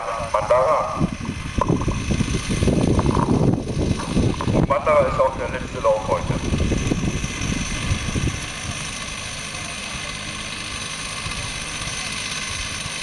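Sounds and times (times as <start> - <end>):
wind buffeting microphone: 0.0 - 9.5.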